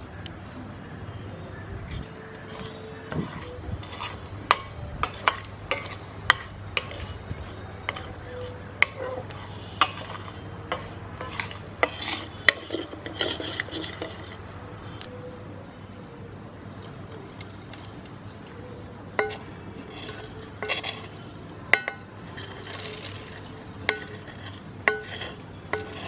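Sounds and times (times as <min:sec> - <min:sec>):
wooden spatula scraping metal pan: 0:01.9 - 0:14.5, 0:19.2 - 0:26.0.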